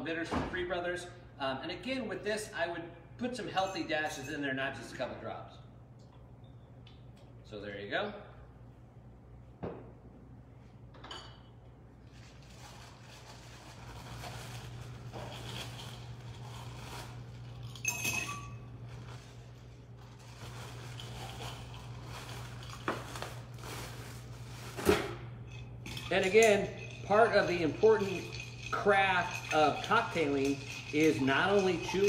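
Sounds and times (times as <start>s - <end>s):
steady low hum: 0.7s - 32.0s
plastic bag of ice rustling: 12.1s - 17.6s, 18.9s - 24.9s
ice clinking on glass: 17.5s - 18.7s, 25.5s - 32.0s.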